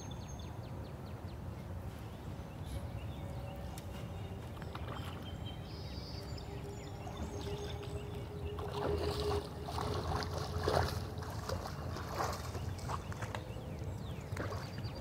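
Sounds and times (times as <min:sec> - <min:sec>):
water splashing and sloshing: 0:03.8 - 0:15.0.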